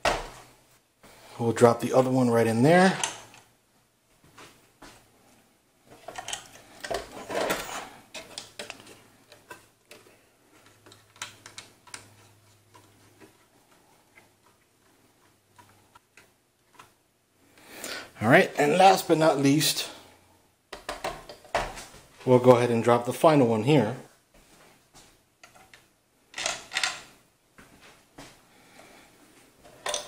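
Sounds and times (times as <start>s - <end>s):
clicks and taps of computer parts: 20.7s - 21.7s.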